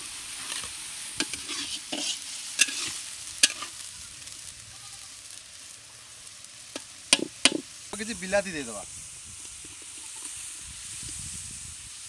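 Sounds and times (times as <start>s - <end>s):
masala sizzling in oil: 0.0s - 12.0s
metal spatula scraping pan: 0.4s - 3.8s.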